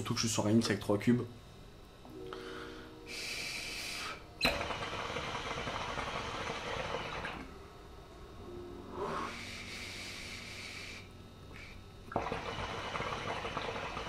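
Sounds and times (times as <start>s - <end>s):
hookah water bubbling: 4.0s - 7.5s, 11.5s - 14.0s.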